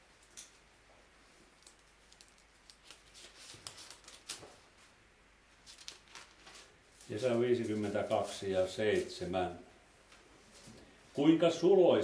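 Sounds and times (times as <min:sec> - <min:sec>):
pages flicking: 0:01.6 - 0:04.6, 0:05.6 - 0:06.7.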